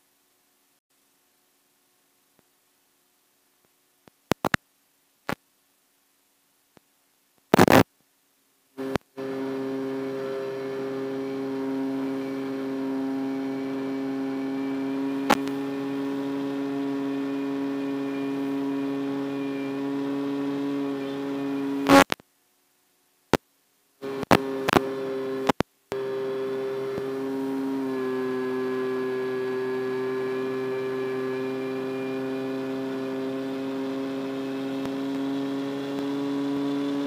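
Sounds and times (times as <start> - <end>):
loud crackles: 7.5 - 7.9
electric motor and propeller drone: 8.8 - 22.1, 24.0 - 37.0.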